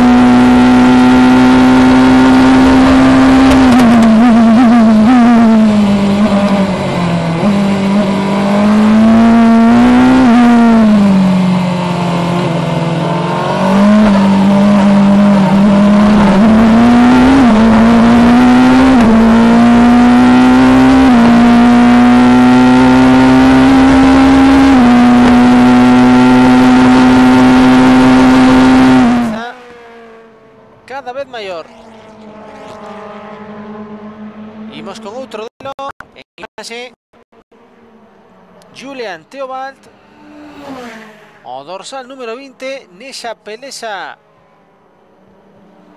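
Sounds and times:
racing car engine revving: 0.0s - 30.8s.

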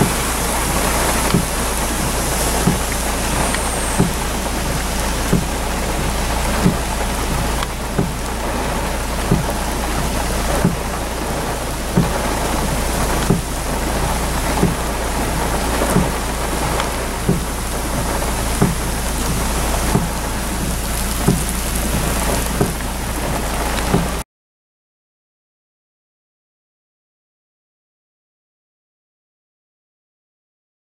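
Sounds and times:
low thump: 0.0s - 4.5s, 6.5s - 8.2s, 9.3s - 9.6s, 17.2s - 22.9s
heavy rain: 0.0s - 24.2s.

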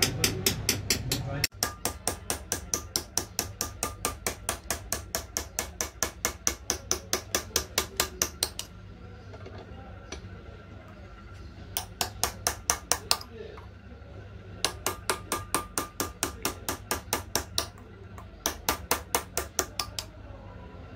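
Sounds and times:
hammer tapping metal chisel: 0.0s - 8.7s, 11.7s - 13.3s, 14.6s - 20.2s
faint low hum: 1.2s - 20.9s.

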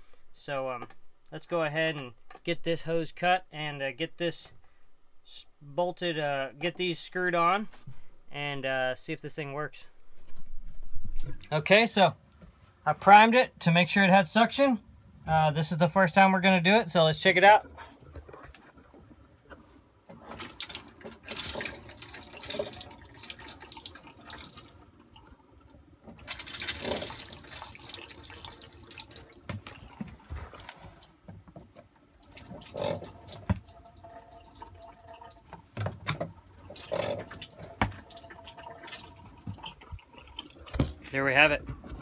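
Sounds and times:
water gushing into a metal sink: 20.3s - 30.2s, 32.2s - 41.4s.

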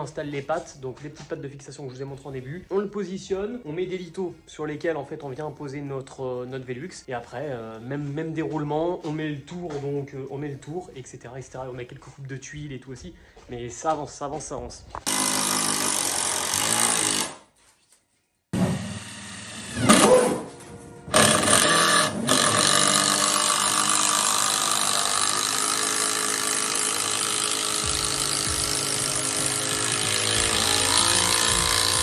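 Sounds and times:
background music: 0.0s - 12.8s, 19.8s - 32.0s.

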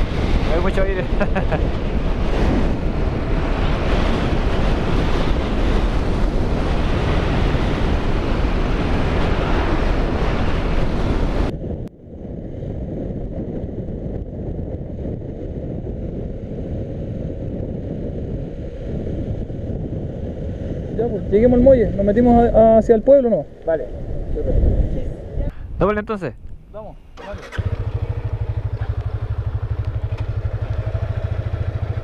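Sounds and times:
wind buffeting microphone: 0.0s - 32.0s
muffled rumble: 26.5s - 31.2s.

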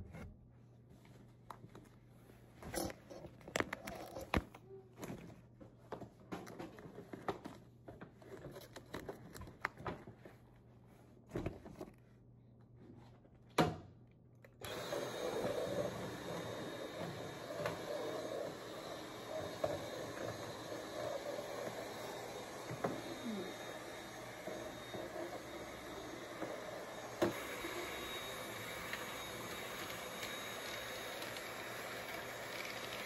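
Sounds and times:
cordless vacuum running: 14.6s - 33.0s.

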